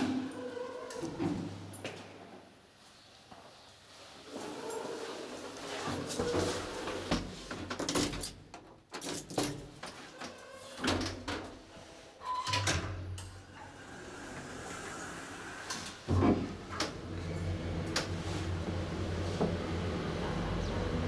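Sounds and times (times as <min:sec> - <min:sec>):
elevator low hum: 0:16.5 - 0:21.0.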